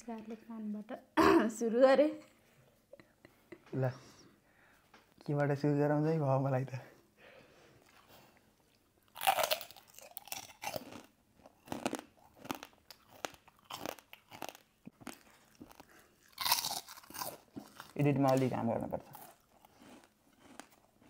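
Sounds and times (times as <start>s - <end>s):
crackers crunching: 8.7s - 21.0s.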